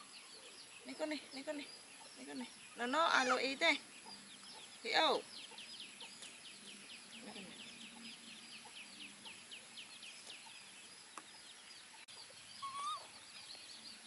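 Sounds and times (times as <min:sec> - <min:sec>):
chick peeping: 0:11.2 - 0:13.5.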